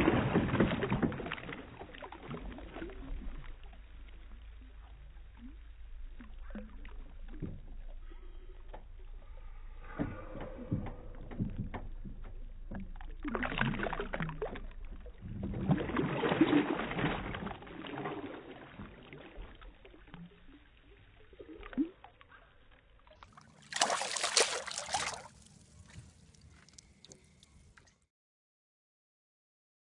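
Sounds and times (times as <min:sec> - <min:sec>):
fish thrashing and splashing water: 0:00.0 - 0:04.0, 0:09.8 - 0:20.6, 0:23.2 - 0:27.9.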